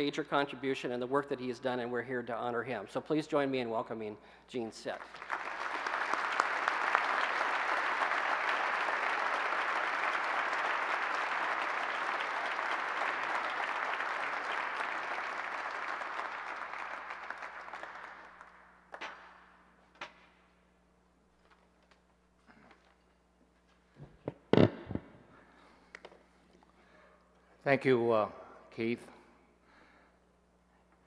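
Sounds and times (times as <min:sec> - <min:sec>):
audience applauding: 0:05.0 - 0:19.3.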